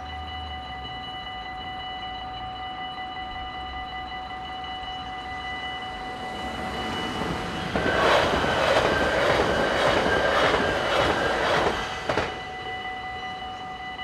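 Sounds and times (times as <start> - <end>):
crossing warning bell ringing: 0.0 - 14.0
train wheels rushing on rail: 5.6 - 13.9.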